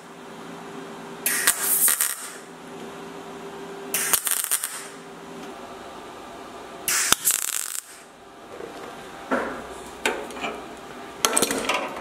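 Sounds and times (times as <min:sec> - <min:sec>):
faint steady hum: 0:00.0 - 0:12.0
welder crackling: 0:01.3 - 0:02.5, 0:04.0 - 0:05.1, 0:06.8 - 0:08.1.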